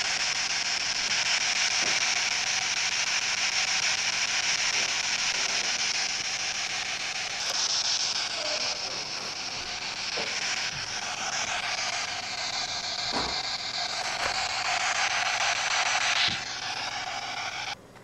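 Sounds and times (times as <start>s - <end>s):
static hiss: 0.0s - 17.8s.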